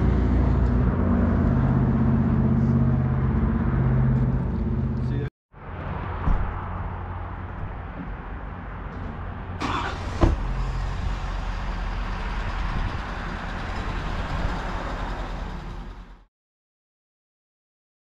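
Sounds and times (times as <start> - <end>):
vehicle engine and road rumble: 0.0 - 16.3.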